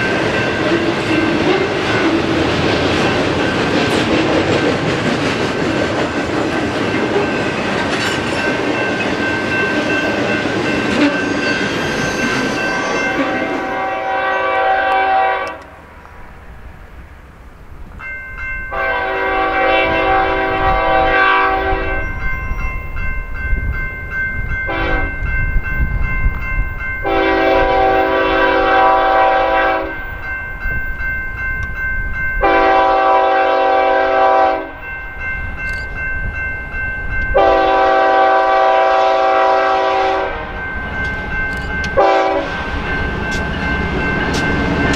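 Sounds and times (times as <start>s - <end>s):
freight train wheels clattering on rails: 0.0s - 15.0s, 17.9s - 44.9s
train air horn blasts: 12.8s - 15.8s, 18.7s - 22.1s, 24.7s - 25.1s, 27.0s - 30.0s, 32.4s - 34.8s, 37.3s - 40.6s, 42.0s - 42.6s.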